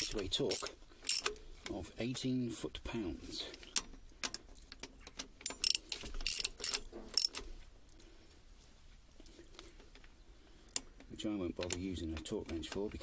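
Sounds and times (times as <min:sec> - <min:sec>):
ratchet wrench clicking: 0:00.0 - 0:01.4, 0:05.4 - 0:07.4.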